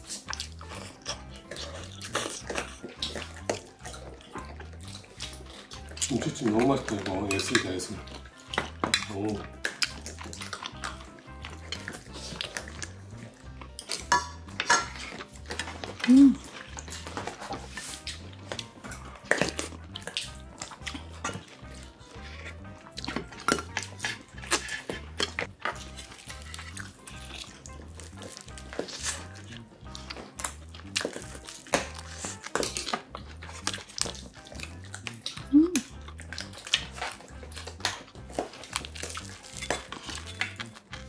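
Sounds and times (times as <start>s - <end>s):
background music with steady beat: 0.0s - 41.0s
utensils clinking on metal bowls: 1.1s - 12.8s, 13.8s - 18.1s.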